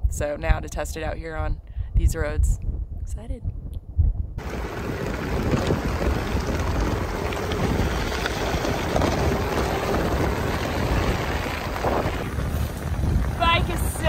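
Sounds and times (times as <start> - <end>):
wind buffeting microphone: 0.0 - 14.0
tyres rolling over dirt road: 4.4 - 14.0.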